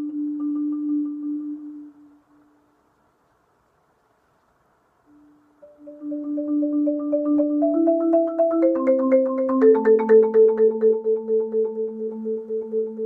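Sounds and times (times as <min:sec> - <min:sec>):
marimba chords: 0:00.0 - 0:02.0, 0:05.6 - 0:13.0.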